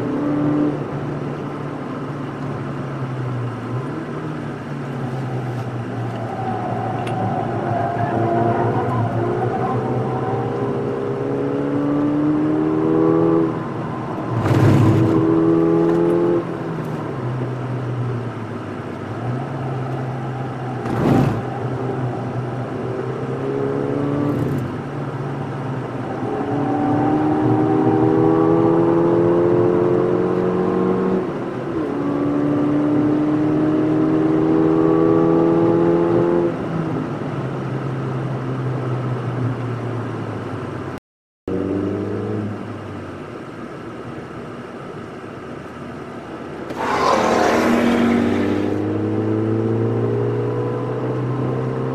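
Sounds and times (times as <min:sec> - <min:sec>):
car engine accelerating: 0:03.4 - 0:36.6, 0:46.6 - 0:51.9.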